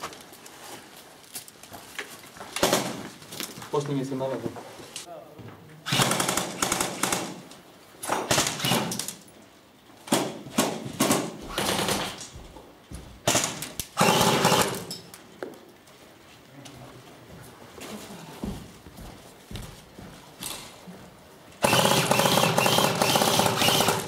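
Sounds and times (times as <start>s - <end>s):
airsoft rifles firing bursts: 2.6s - 3.0s, 5.9s - 7.5s, 10.1s - 12.2s, 13.3s - 14.9s, 21.6s - 24.0s.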